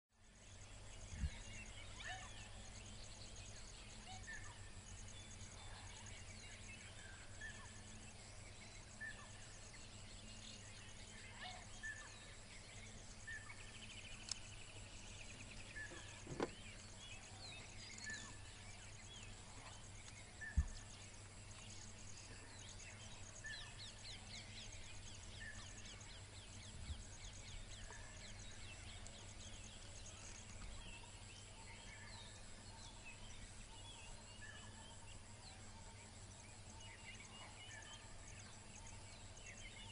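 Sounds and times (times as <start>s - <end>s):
low steady hum: 0.2s - 39.9s
soft thumps: 16.0s - 16.6s.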